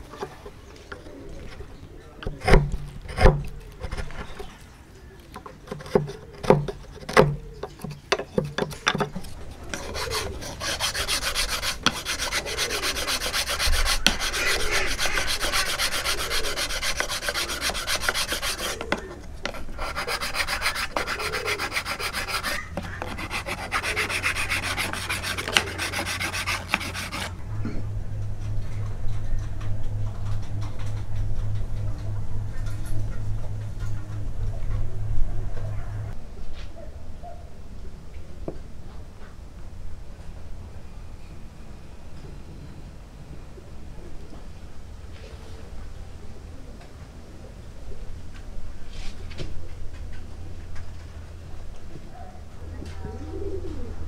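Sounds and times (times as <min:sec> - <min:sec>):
file rasping on wood: 0:05.7 - 0:27.4.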